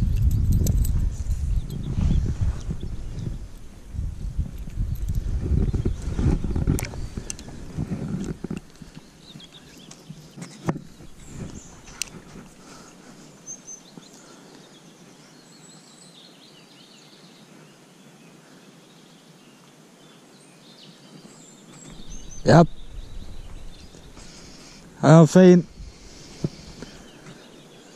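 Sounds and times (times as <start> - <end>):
low rumbling on microphone: 0.0 - 8.6, 21.9 - 25.0, 25.6 - 27.6
small birds chirping faintly: 0.0 - 27.9.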